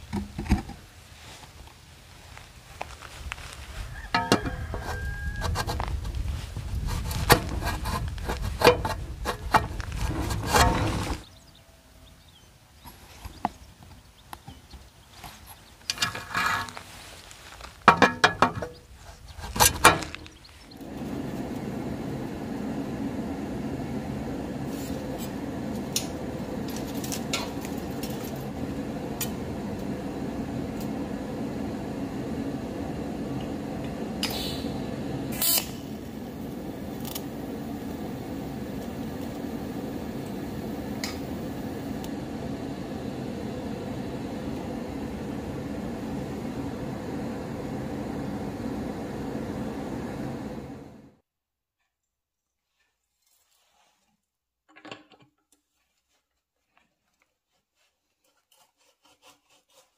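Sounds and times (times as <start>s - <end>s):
welder humming: 3.8s - 11.4s, 17.9s - 51.2s.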